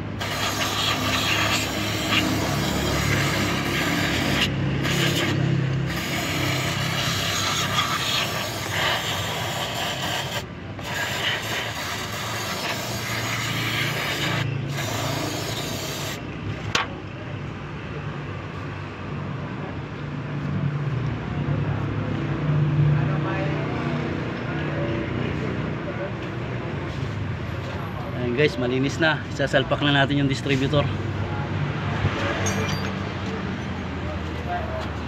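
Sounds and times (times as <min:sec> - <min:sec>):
aerosol spray hissing: 0:00.2 - 0:16.2
rag rubbing metal: 0:00.2 - 0:16.2.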